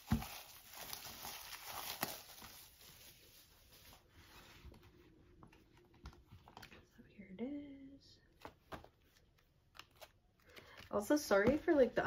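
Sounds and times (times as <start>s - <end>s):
plastic shrink wrap crinkling: 0.0s - 4.1s
faint handling of book: 0.0s - 7.0s, 8.3s - 12.0s.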